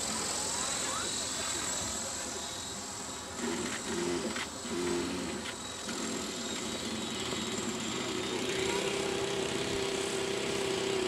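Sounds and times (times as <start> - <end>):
rc helicopter motor whine: 0.0 - 11.0.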